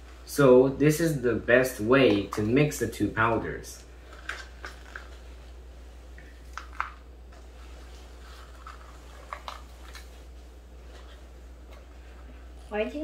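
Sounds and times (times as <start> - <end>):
plastic cups clicking and rustling: 3.9 - 5.2, 8.2 - 10.2.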